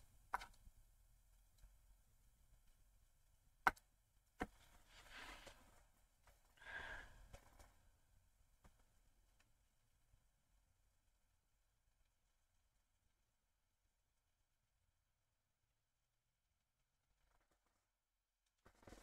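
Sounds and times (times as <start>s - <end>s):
stylus tapping on tablet screen: 3.6s - 4.5s
soft breathy sighs: 6.6s - 7.8s.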